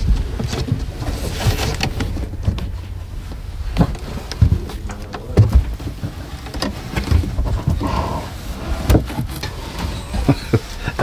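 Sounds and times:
loud thumps: 0:00.0 - 0:07.9
knocks on wooden joists: 0:00.0 - 0:08.0
rustling and scuffing insulation: 0:00.0 - 0:11.0.

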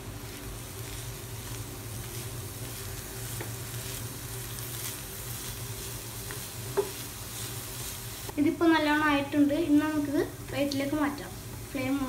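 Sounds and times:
food sizzling in a frying pan: 0:00.0 - 0:12.0
spatula scraping and rustling: 0:00.4 - 0:08.3.

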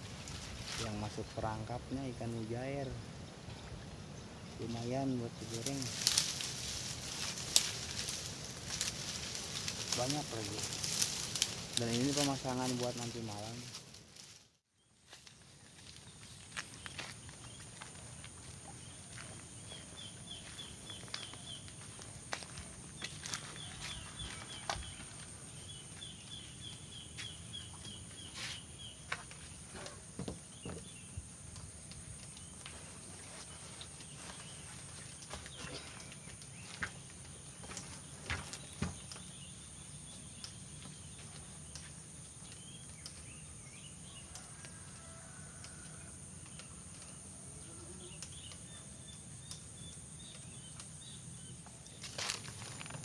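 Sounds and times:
rapid insect trill: 0:04.1 - 0:14.4, 0:16.3 - 0:53.0
faint clicks: 0:44.3 - 0:51.0.

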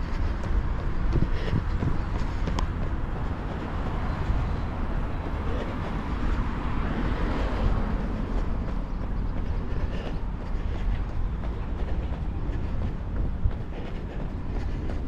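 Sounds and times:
low traffic rumble: 0:00.0 - 0:15.0
steady street hiss: 0:00.0 - 0:15.0.

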